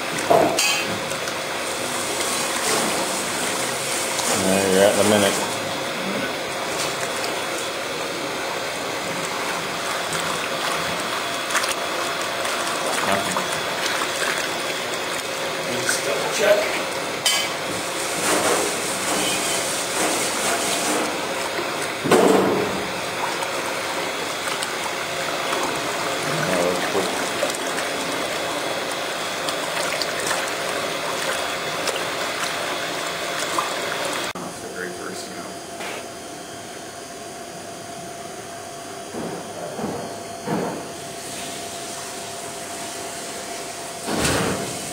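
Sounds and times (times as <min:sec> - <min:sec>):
mixer humming: 0:00.0 - 0:44.9
rushing liquid: 0:01.0 - 0:34.4.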